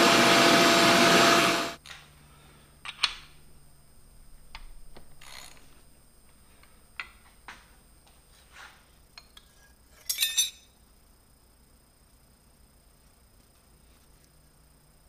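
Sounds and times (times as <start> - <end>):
metal pieces clicking and knocking: 2.8 - 3.3, 9.3 - 10.6
sharp metallic clinks: 10.0 - 10.7.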